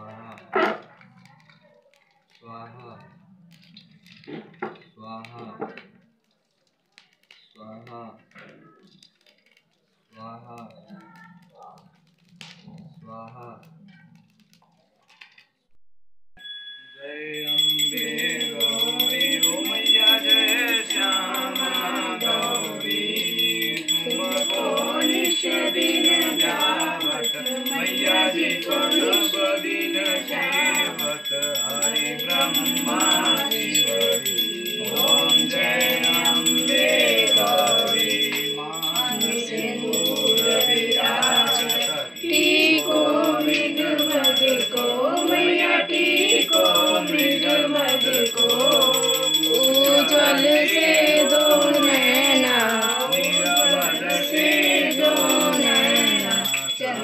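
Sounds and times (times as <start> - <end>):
devotional singing: 17.0 - 57.0.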